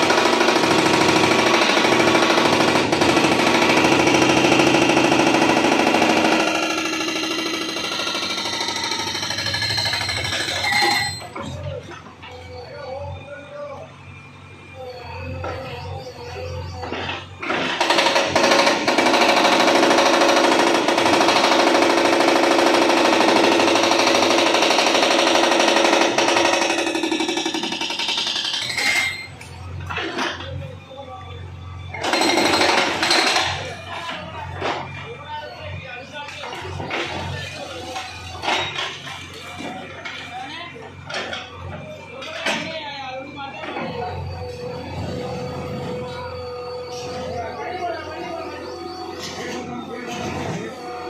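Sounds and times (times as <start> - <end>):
hydraulic breaker hammering concrete: 0.0 - 11.6, 16.8 - 30.2, 32.0 - 34.2
machine engine running: 14.0 - 28.6.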